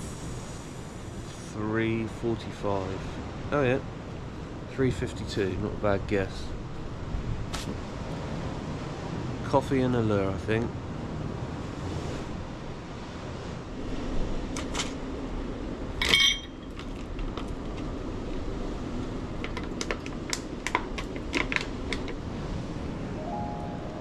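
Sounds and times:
background hiss: 0.0s - 4.4s
ringing clink: 16.0s - 16.7s
metal pots clinking on rock: 16.0s - 16.8s.

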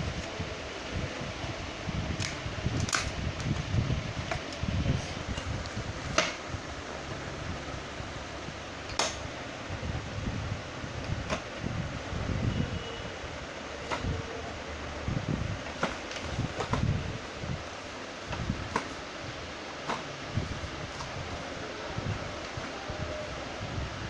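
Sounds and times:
steady background hum: 0.0s - 24.0s
rubbing and bumping of parts: 15.6s - 17.1s, 18.2s - 19.1s, 19.7s - 21.3s.

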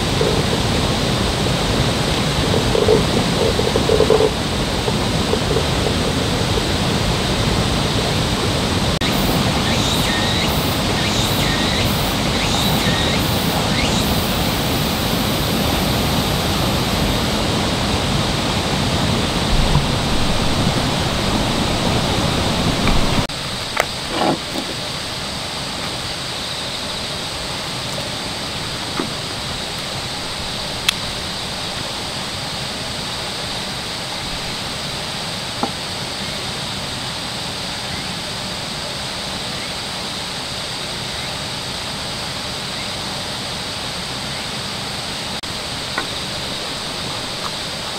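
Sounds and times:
steady hiss: 0.0s - 47.9s
steady rushing noise: 0.0s - 47.9s.

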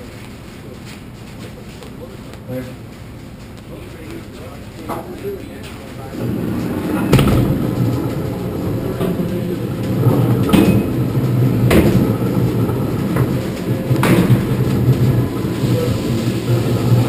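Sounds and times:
roller coaster car rumbling: 6.0s - 17.0s
sharp track clunks: 6.2s - 17.0s.

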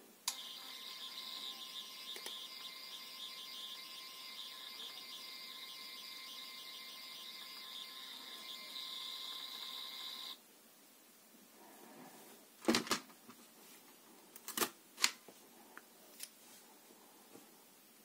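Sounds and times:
label printer motor whining: 0.3s - 10.4s.

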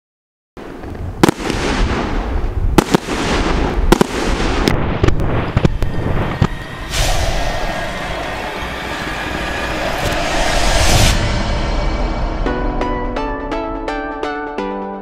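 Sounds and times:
fireworks banging: 0.6s - 7.4s
fireworks crackle and hiss: 0.6s - 7.4s.

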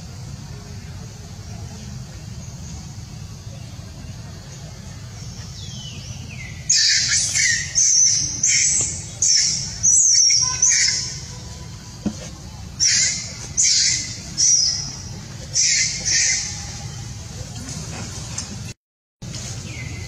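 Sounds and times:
macaque screaming: 15.6s - 16.6s.

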